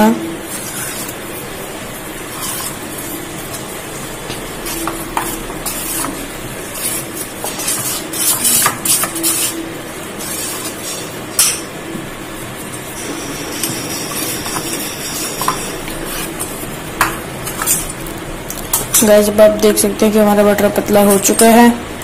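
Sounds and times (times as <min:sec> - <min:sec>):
spoon scraping steel bowl: 0:04.6 - 0:09.6.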